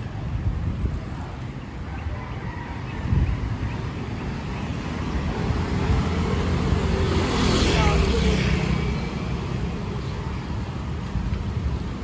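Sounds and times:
wind buffeting microphone: 0.0s - 7.3s
distant motorcycle and car traffic: 0.0s - 12.0s.

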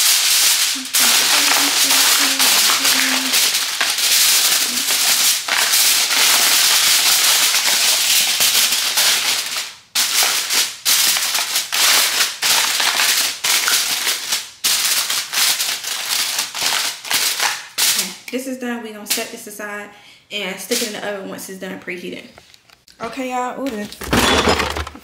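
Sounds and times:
aluminum foil crinkling: 0.0s - 18.2s.

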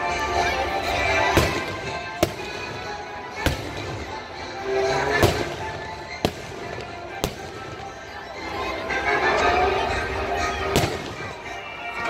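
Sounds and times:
music playing: 0.0s - 12.0s
fireworks bursting bangs: 1.1s - 8.1s, 10.7s - 11.5s.

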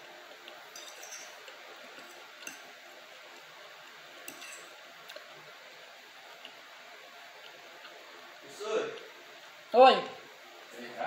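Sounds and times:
cutlery tapping glass plate: 0.7s - 1.4s, 2.0s - 2.7s, 4.3s - 4.7s.

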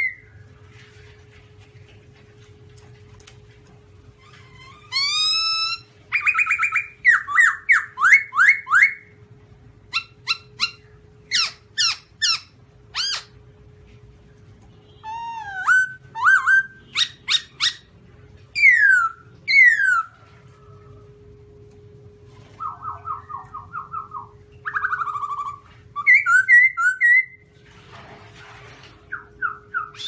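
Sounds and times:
bird singing whistled phrases: 0.0s - 0.3s, 4.9s - 9.1s, 15.0s - 17.9s, 18.6s - 20.2s, 22.6s - 27.4s, 29.1s - 30.0s
faint steady hum: 0.0s - 30.0s.

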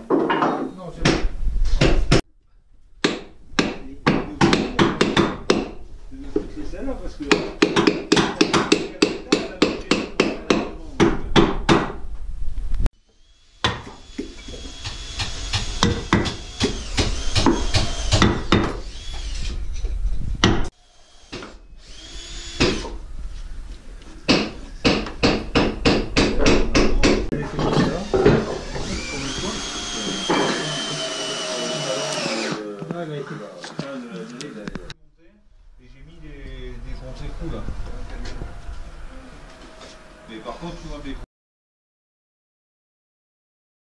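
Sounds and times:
mallet striking chisel on wood: 3.0s - 5.8s, 7.3s - 12.0s, 24.3s - 27.3s
power tool whine: 13.0s - 19.8s, 20.8s - 23.0s, 27.8s - 32.6s.

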